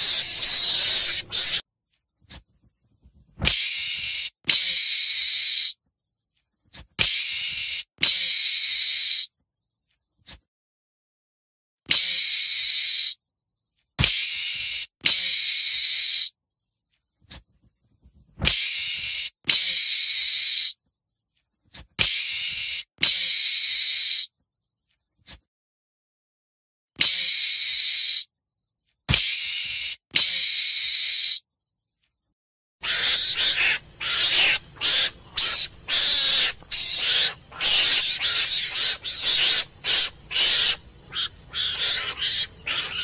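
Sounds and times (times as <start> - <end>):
meerkat hissing: 0.0 - 1.6, 32.8 - 43.0.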